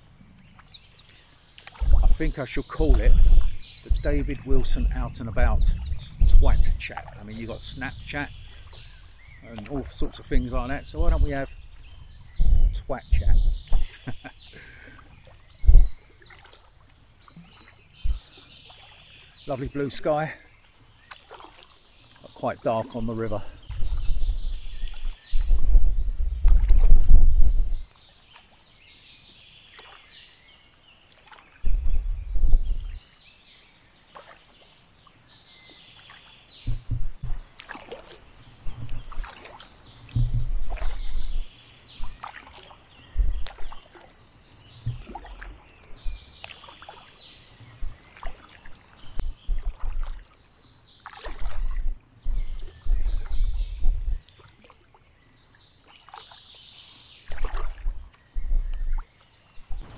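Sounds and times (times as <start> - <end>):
paddle splashing in water: 0.0 - 59.9
wind buffeting microphone: 1.8 - 16.1, 18.0 - 18.4, 23.0 - 27.9, 31.6 - 33.0, 36.6 - 37.5, 38.5 - 42.2, 43.0 - 43.8, 44.7 - 46.3, 51.4 - 54.3, 57.9 - 59.0, 59.6 - 59.9.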